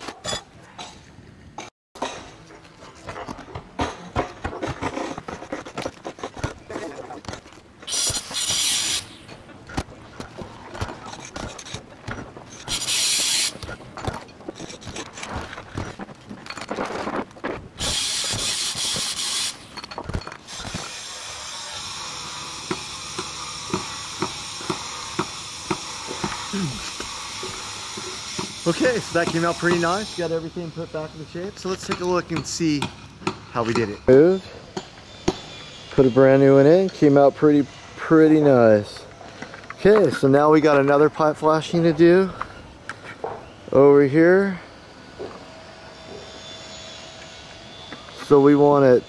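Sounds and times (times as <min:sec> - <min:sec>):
shingles scraping: 0:02.7 - 0:21.0
loud hiss: 0:07.9 - 0:09.3, 0:12.7 - 0:13.6, 0:17.8 - 0:19.8, 0:20.5 - 0:32.6.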